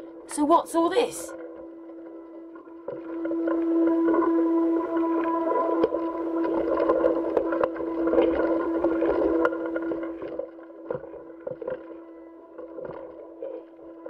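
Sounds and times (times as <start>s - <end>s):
steady tonal hum: 0.0s - 14.0s.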